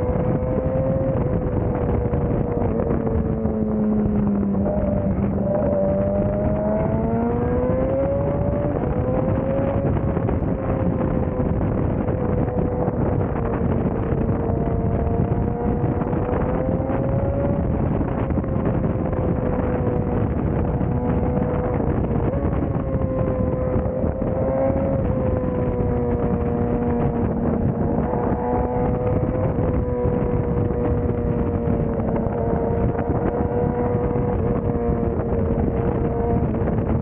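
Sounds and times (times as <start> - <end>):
motorcycle engine revving: 0.0 - 37.0
wind rushing over microphone: 0.0 - 37.0.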